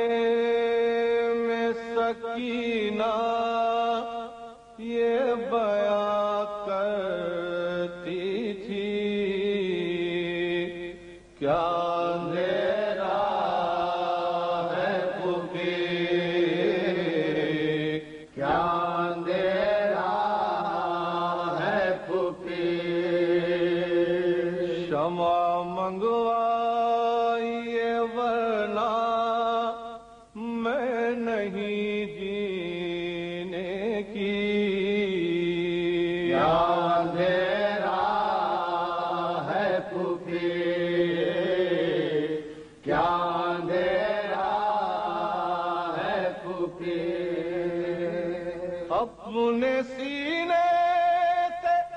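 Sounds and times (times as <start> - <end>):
men chanting a lament: 0.0 - 51.9.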